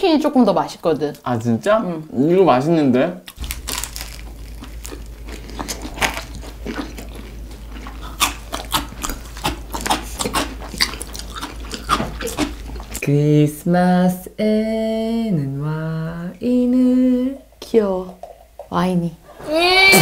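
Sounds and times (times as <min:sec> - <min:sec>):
crunching fried chicken: 0:03.3 - 0:13.0.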